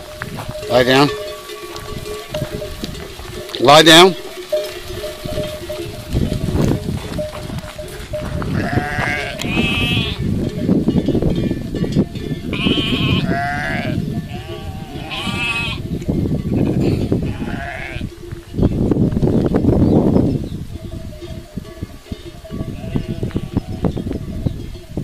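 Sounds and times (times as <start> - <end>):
rumble of flock moving: 0.0 - 24.3
sheep bleating: 8.5 - 10.2, 12.5 - 15.8, 16.6 - 18.1.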